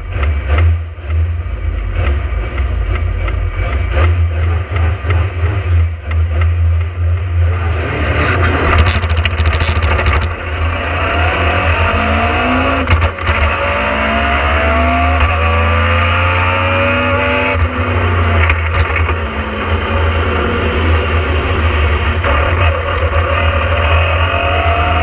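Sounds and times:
car engine accelerating: 0.0 - 25.0
gear shift: 8.0 - 13.5.

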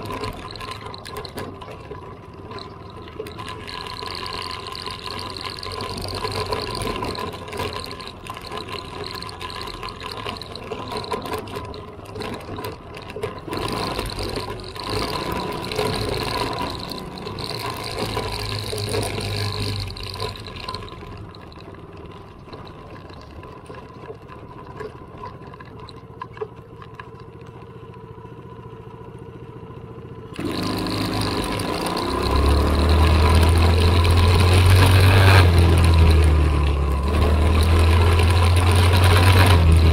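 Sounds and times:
off-road vehicle engine revving: 2.5 - 21.7, 30.3 - 39.9.

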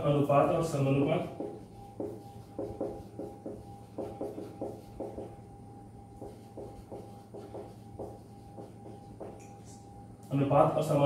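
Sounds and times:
steady low hum: 0.0 - 11.0
marker squeaking on whiteboard: 1.2 - 5.5, 6.1 - 9.8.

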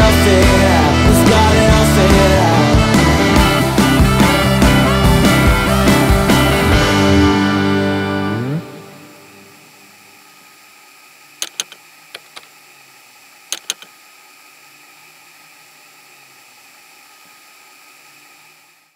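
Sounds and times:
steady hiss: 8.6 - 18.9
sharp clicks: 11.4 - 12.5, 13.5 - 13.9.

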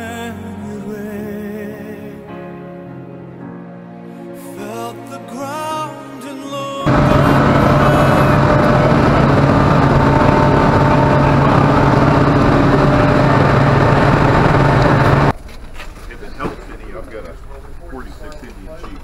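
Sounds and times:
ship machinery drone: 6.9 - 15.3.

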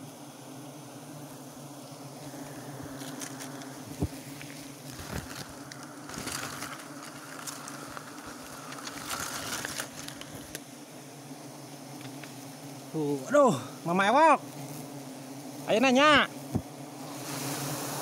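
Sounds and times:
bee colony buzzing: 0.0 - 18.0
leaves rustling: 1.8 - 14.6
handling noise: 2.8 - 10.6.

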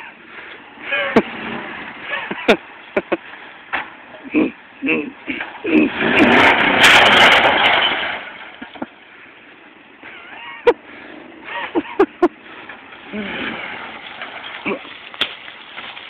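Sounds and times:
truck engine revving hard: 0.7 - 3.5, 4.2 - 8.8, 10.8 - 15.0.

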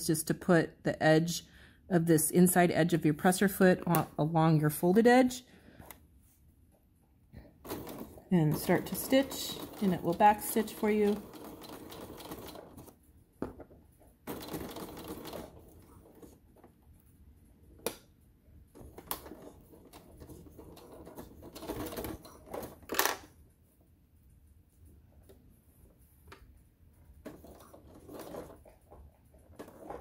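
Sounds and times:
electric sewing machine stitching: 7.7 - 12.9, 14.3 - 15.9.

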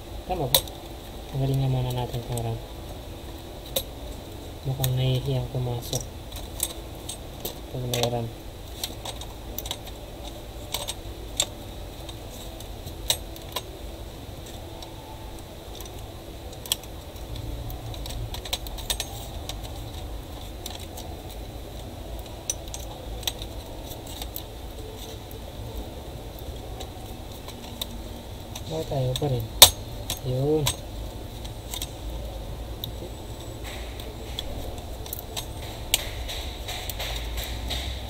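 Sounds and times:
steady low hum: 0.0 - 38.0
sharp clicks and light knocks: 0.4 - 13.8, 14.4 - 38.0.

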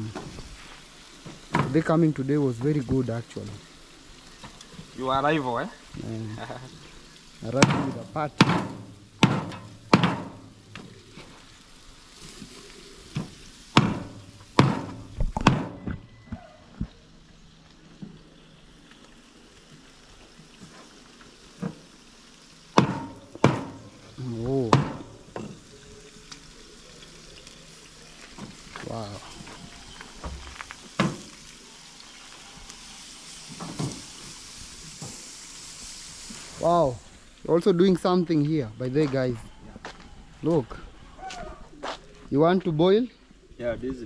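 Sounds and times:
meat sizzling: 0.0 - 44.0
meat chopping on a board: 7.6 - 10.3, 22.8 - 23.8.

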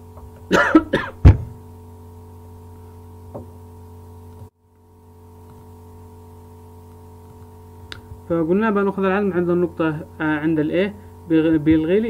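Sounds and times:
low electrical hum: 0.0 - 12.0
sharp knock with deep thud: 1.2 - 1.6.

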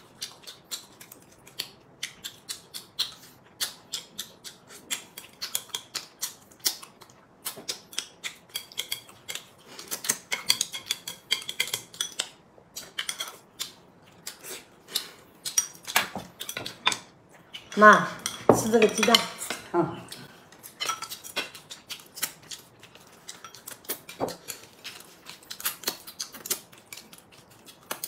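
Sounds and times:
chopsticks clicking on porcelain bowls: 7.7 - 14.3, 14.9 - 24.7.

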